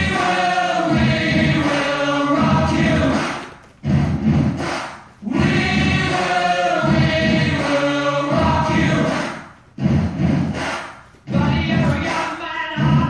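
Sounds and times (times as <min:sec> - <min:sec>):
choir singing: 0:00.0 - 0:03.4, 0:05.2 - 0:09.2.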